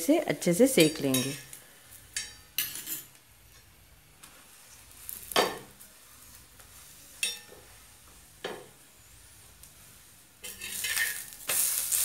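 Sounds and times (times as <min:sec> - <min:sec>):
spatula clinking and scraping on iron: 0:00.8 - 0:03.1, 0:07.2 - 0:07.7, 0:10.4 - 0:11.6
flatbread frying in oil: 0:00.9 - 0:12.0.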